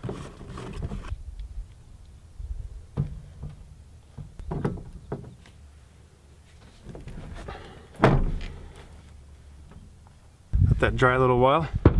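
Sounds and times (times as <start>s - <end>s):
knocks and scrapes of plastic pipe: 0.0s - 1.1s.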